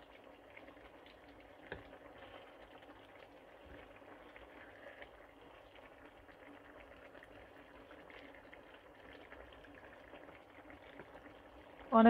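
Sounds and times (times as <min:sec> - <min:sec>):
broth bubbling and crackling: 0:00.0 - 0:12.0.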